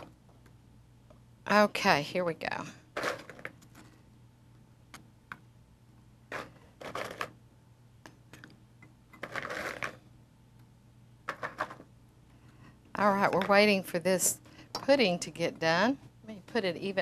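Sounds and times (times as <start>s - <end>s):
cookies rustling: 6.3s - 7.4s, 9.2s - 10.1s.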